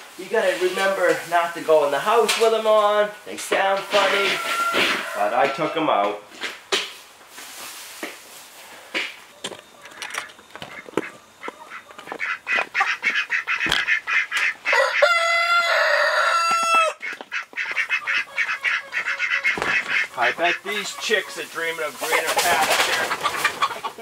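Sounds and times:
chickens clucking: 0.2 - 7.0, 8.7 - 24.0
rooster crowing: 3.8 - 6.0, 14.6 - 17.0.

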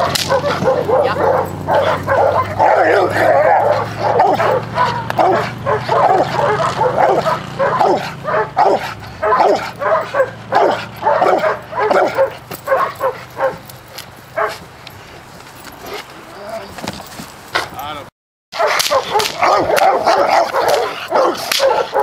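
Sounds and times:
dog barking excitedly: 0.0 - 13.7, 14.3 - 14.7, 18.5 - 22.0.

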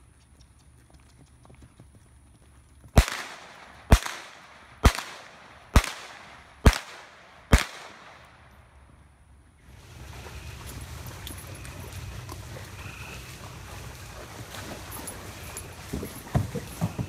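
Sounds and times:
gunshots with echo: 3.0 - 8.5.

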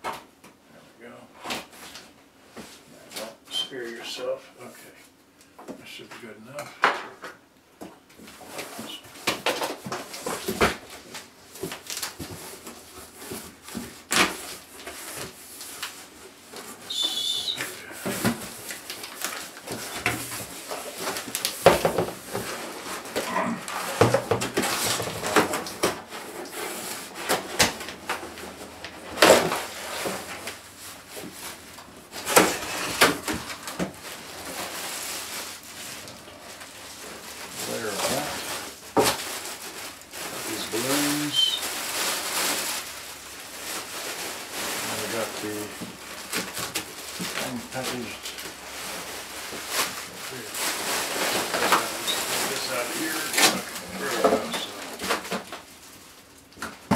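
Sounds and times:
plastic sheet crinkling: 8.4 - 56.9.

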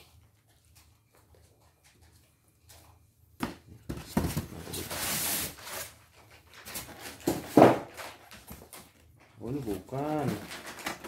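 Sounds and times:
styrofoam scraping and rubbing: 4.5 - 6.0.

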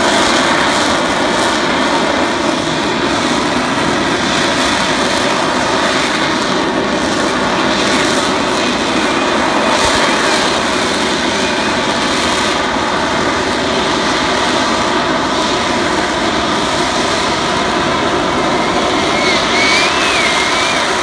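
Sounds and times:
jet engine roar: 0.0 - 21.0
faint wavering whistle: 19.0 - 21.0.

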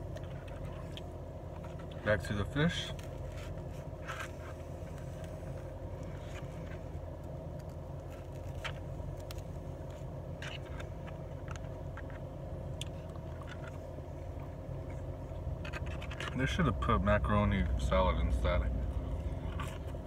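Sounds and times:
car cabin hum: 0.0 - 20.0.

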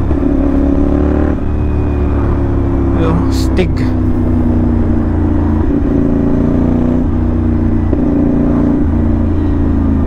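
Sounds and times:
motorcycle engine with loud exhaust: 0.0 - 10.0.

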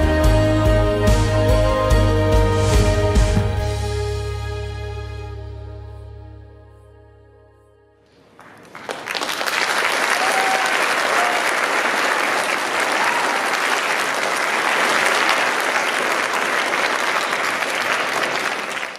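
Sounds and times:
audience applause: 8.3 - 18.9.

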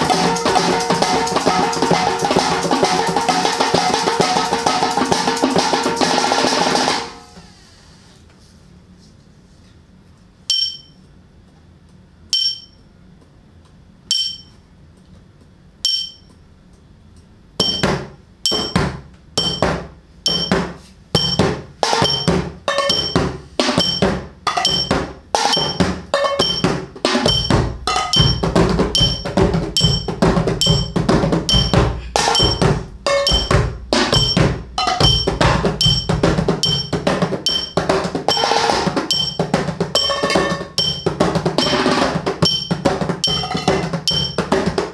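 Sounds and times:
ringing clink: 10.5 - 11.0, 12.3 - 12.9, 14.1 - 14.6, 15.8 - 16.3, 18.5 - 18.8, 19.4 - 19.6, 20.3 - 20.5, 24.6 - 24.9, 25.5 - 25.8, 35.1 - 36.9, 37.5 - 38.4, 39.1 - 39.4, 40.0 - 41.8, 42.4 - 44.4.

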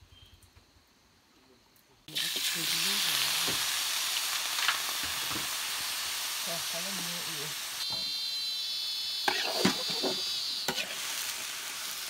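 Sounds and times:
insects sizzling in a wok: 0.1 - 12.0.

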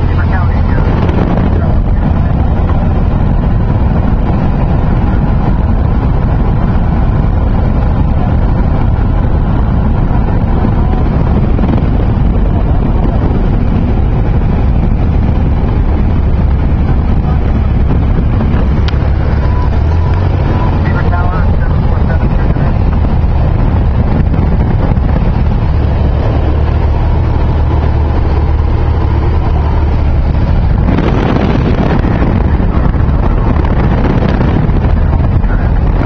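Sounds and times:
light aircraft engine drone: 0.0 - 36.0
wind rushing: 0.0 - 36.0.

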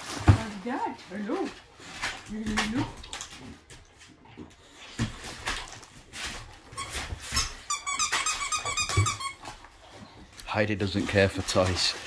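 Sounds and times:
toy squeaker squeaking rapidly: 6.8 - 9.4
paper bag rustling: 10.8 - 12.0.

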